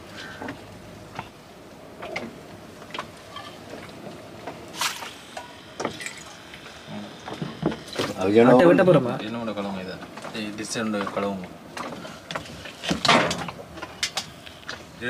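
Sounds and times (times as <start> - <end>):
faint liquid sounds: 2.0 - 8.7.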